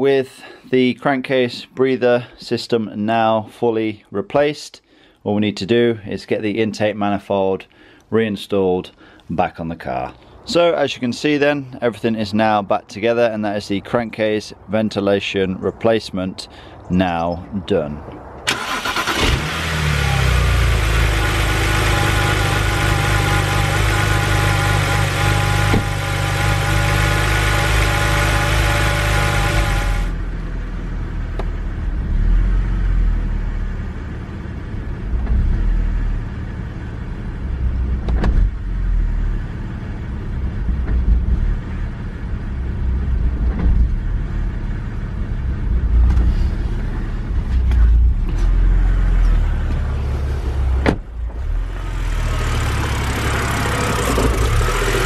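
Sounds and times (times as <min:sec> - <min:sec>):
car engine idling roughly: 0:20.6 - 0:30.1, 0:52.3 - 0:55.0.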